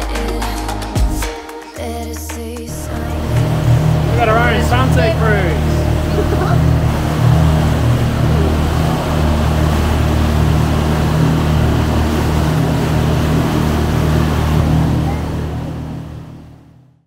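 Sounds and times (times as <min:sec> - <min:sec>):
wind and water rushing: 0:02.7 - 0:16.2
boat motor humming: 0:02.7 - 0:17.0.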